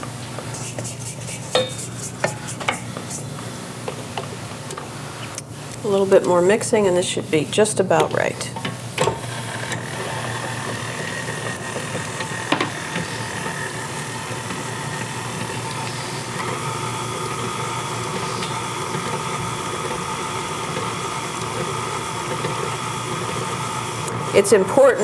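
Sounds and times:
stand mixer motor whine: 8.6s - 25.0s.

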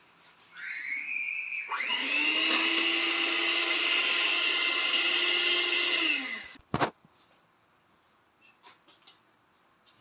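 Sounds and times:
electric mixer whining: 1.6s - 6.6s.

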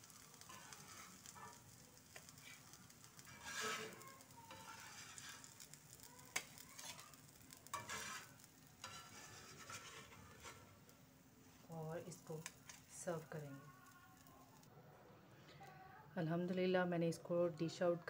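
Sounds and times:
metal spatula scraping iron griddle: 0.0s - 13.4s
faint oil sizzle: 0.0s - 14.7s.

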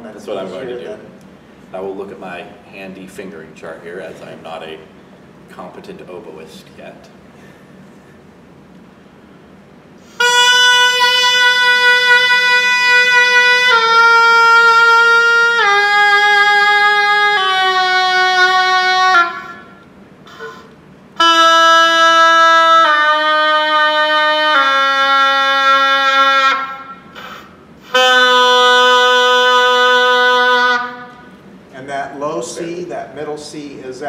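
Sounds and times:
oboe playing slow descending scale: 10.0s - 31.3s.

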